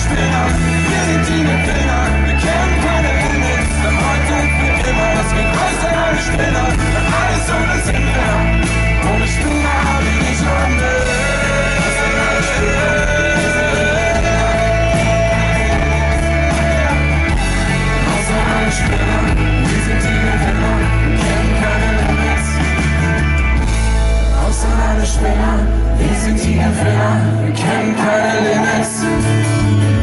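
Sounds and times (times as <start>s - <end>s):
person singing: 0.0s - 23.4s, 24.2s - 30.0s
drum beat: 0.0s - 23.8s
acoustic guitar: 0.0s - 30.0s
heavy bass line: 0.0s - 30.0s.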